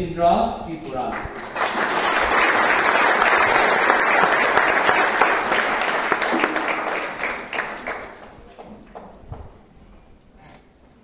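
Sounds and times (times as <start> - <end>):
audience applauding: 1.1 - 9.1.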